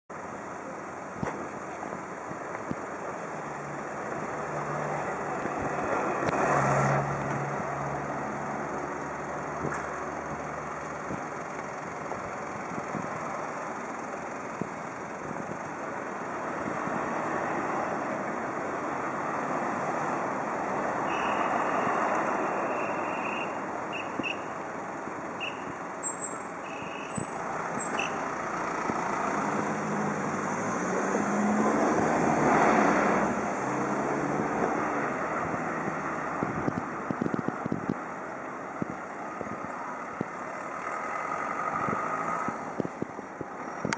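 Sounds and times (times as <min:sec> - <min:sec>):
cars and trucks passing: 0:00.1 - 0:43.9.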